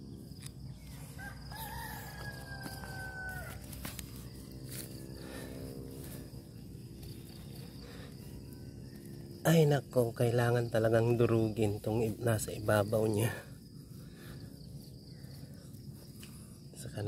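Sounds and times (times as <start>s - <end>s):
low steady hum: 0.0s - 17.0s
soil and straw crumbling: 0.4s - 6.3s.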